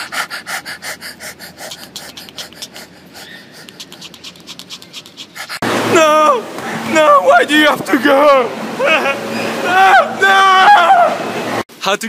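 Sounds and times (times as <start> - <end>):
dog panting: 0.0 - 5.6.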